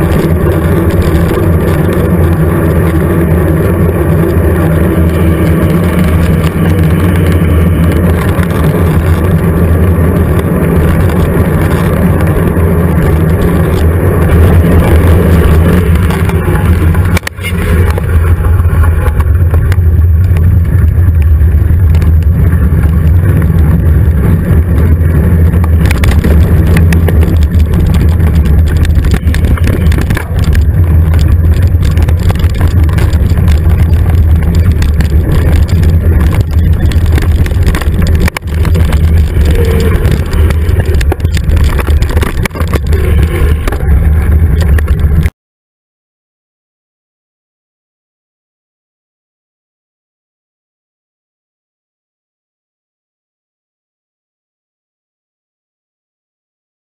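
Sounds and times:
bike tyre and frame rattle: 0.0s - 45.3s
wind rumble: 0.0s - 45.3s.

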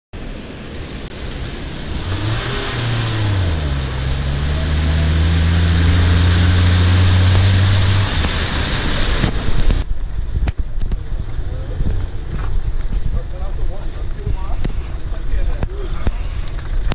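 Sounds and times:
water splashing from wheels: 0.2s - 16.9s
car engine pulling: 1.1s - 9.8s.

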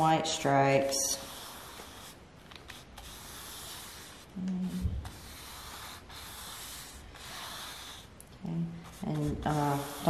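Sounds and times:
paintbrush scratching on canvas: 0.0s - 10.0s.

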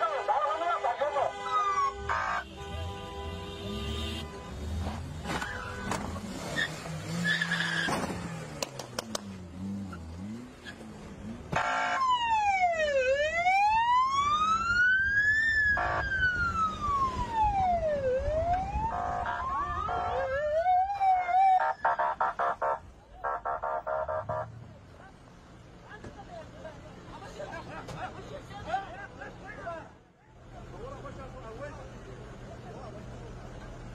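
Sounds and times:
road and car noise: 0.0s - 33.9s
short horn blasts: 1.2s - 6.2s
siren wailing: 1.5s - 2.5s, 11.6s - 24.5s.

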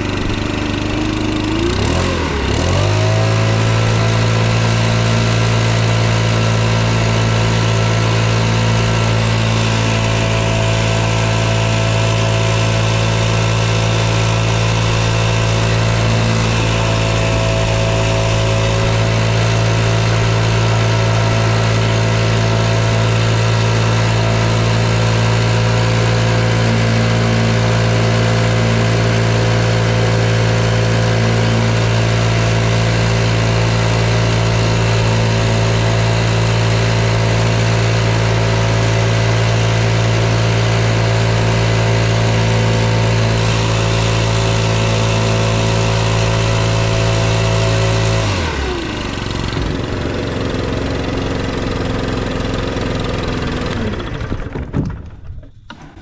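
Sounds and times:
leaf blower engine idling: 0.0s - 56.0s.

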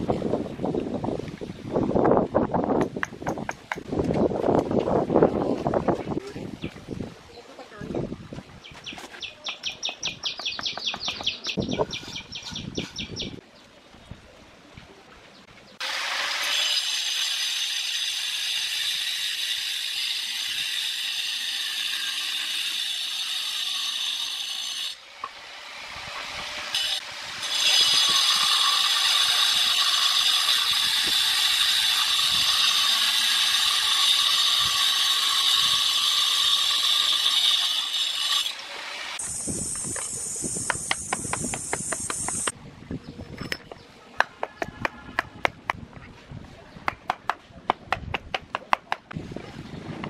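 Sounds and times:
angle grinder cutting stone: 15.8s - 42.5s.

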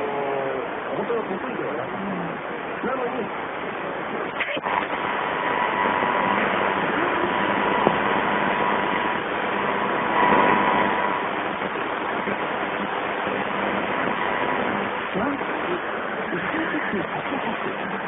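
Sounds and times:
buried radio voice: 0.0s - 5.0s, 6.6s - 8.0s, 10.1s - 18.0s
radio static hiss: 0.0s - 18.0s.

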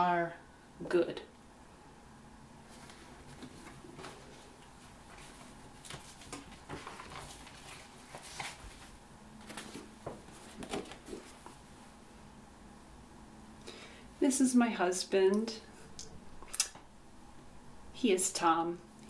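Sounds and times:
paper cards rustling and knocking: 2.7s - 11.6s.

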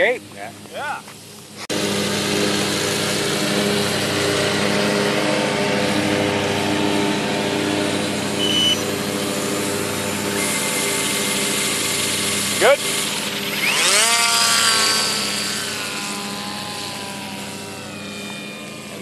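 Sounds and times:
cordless drill running: 6.0s - 19.0s.

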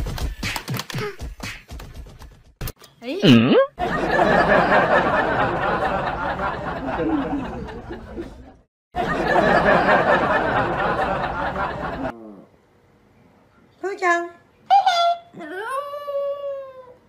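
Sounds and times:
crowd laughter and chatter: 3.8s - 12.1s.

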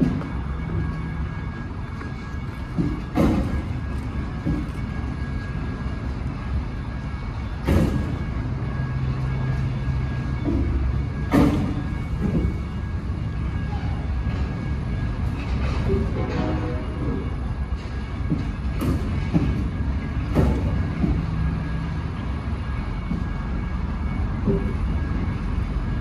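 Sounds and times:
sharp metallic bangs: 7.6s - 8.5s, 10.4s - 12.9s.

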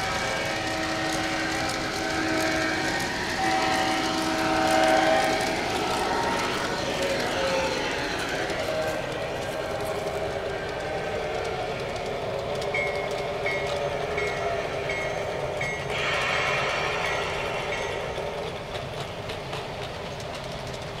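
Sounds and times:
model train wheels rumbling: 0.0s - 21.0s
wheels clicking over rail joints: 0.0s - 21.0s
hissing sound: 15.9s - 19.3s.

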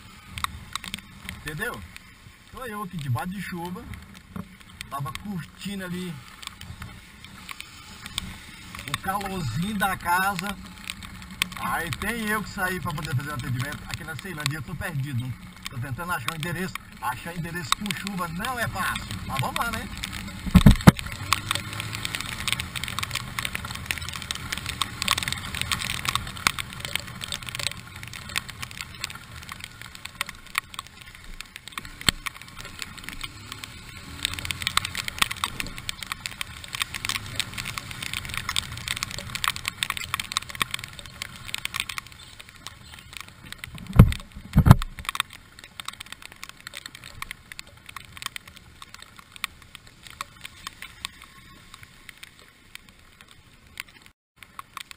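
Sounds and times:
tyres hissing on wet road: 0.0s - 44.1s
motorcycle engine running: 0.0s - 52.3s
raindrops ticking on camera: 0.0s - 54.9s
low thumps: 18.5s - 21.2s
wind noise: 20.2s - 22.1s, 42.1s - 45.2s.

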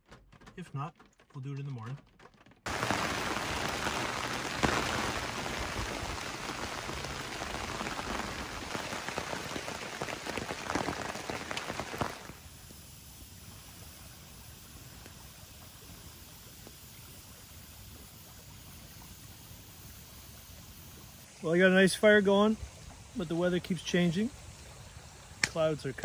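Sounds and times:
heavy rain on fabric awning: 0.1s - 12.6s.

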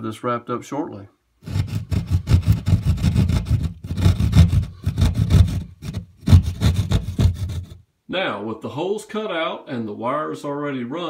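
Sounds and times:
hand saw rasping through drywall: 1.4s - 7.8s.

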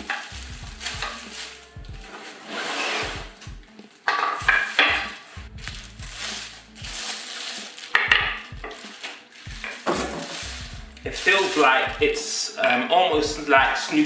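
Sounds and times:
plastic wrapping crinkling: 0.0s - 13.0s
knocks on wooden floor: 8.0s - 8.8s.

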